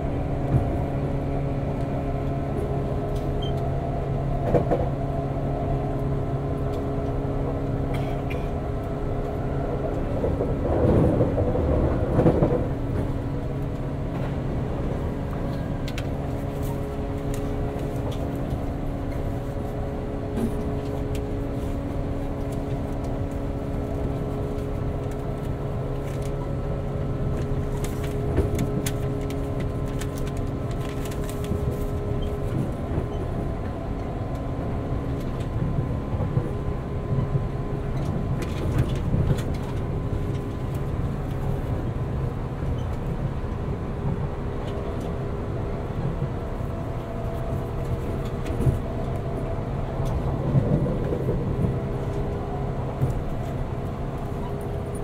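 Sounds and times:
wheels rumbling: 0:00.0 - 0:55.0
clacks on rails: 0:09.2 - 0:19.3.

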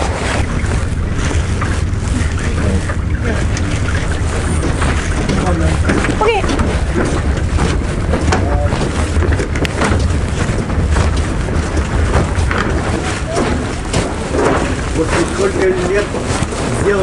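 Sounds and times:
footsteps on metal pontoon: 0:00.0 - 0:17.0
wind buffeting microphone: 0:00.0 - 0:17.0.

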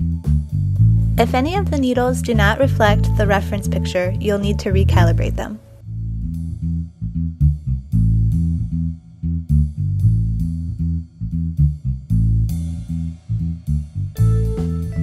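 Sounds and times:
guitar: 0:00.0 - 0:05.8, 0:14.2 - 0:15.0
plucked bass guitar: 0:00.0 - 0:15.0.

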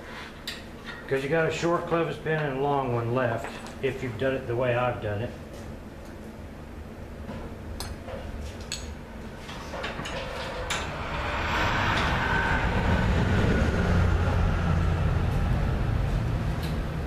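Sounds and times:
low rumble: 0:09.1 - 0:17.0.

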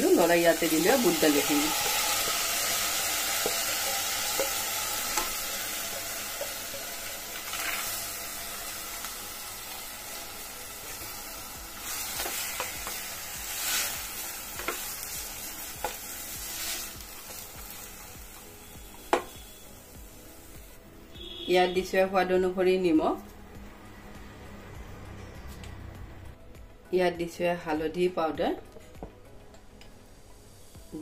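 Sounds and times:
food sizzling in oil: 0:00.0 - 0:21.8
spoon scraping and tapping pan: 0:01.8 - 0:07.9.

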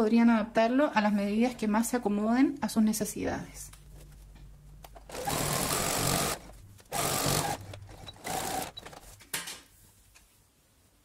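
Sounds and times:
sewing machine stitching: 0:05.0 - 0:09.1.

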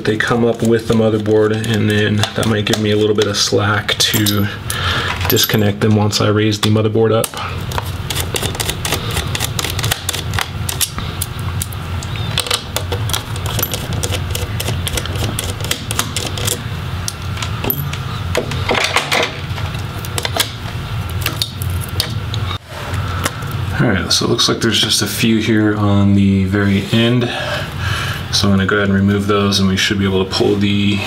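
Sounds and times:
low steady hum: 0:00.0 - 0:31.0
small parts being handled: 0:04.1 - 0:05.7, 0:12.4 - 0:16.6.

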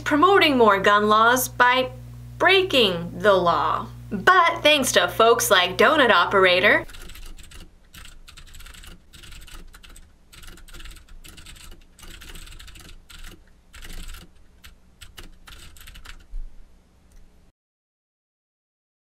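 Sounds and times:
low steady hum: 0:00.0 - 0:17.5
typing on a keyboard: 0:06.9 - 0:16.3.

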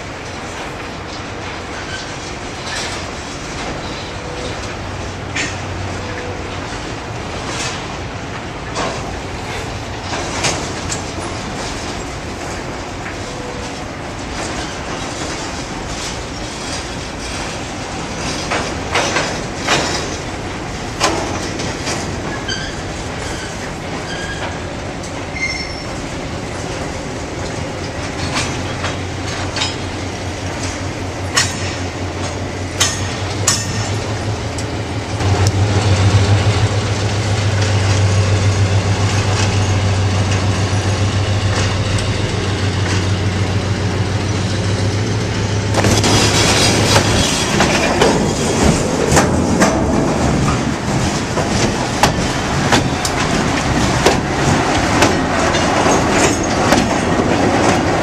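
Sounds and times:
diesel locomotive engine drone: 0:00.0 - 0:58.0
wheels clanking over rail joints: 0:00.0 - 0:58.0
train wheel squeals: 0:01.1 - 0:06.8, 0:08.8 - 0:12.1, 0:21.1 - 0:26.9, 0:35.6 - 0:49.2, 0:54.7 - 0:57.2.

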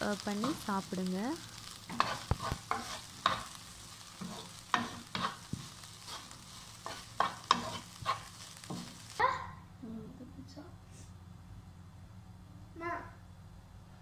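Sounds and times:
frying sizzle: 0:00.0 - 0:09.7
spatula scraping frying pan: 0:01.6 - 0:09.2.

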